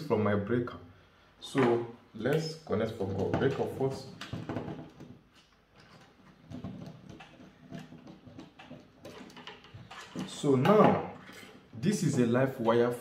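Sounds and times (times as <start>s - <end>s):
small clicks and rustles: 4.2s - 10.5s.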